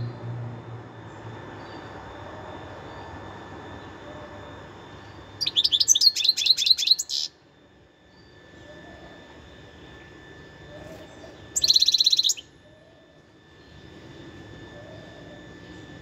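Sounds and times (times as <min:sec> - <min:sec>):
bird twittering: 0:05.0 - 0:07.4, 0:10.7 - 0:13.0.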